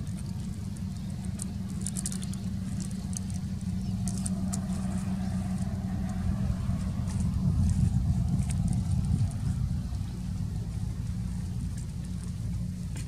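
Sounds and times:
faint high ticks: 0.0s - 7.8s
low humming rumble: 0.0s - 13.0s.

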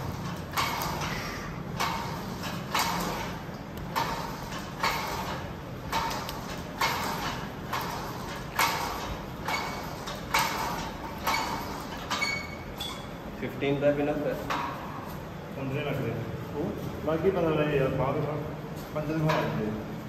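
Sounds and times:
cable swishing over pulleys: 0.0s - 13.3s.

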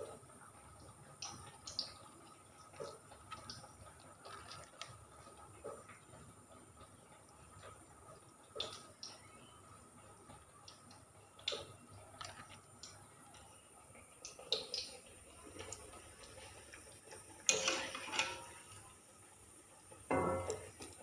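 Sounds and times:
kitchen utensils clicking: 17.4s - 18.7s.

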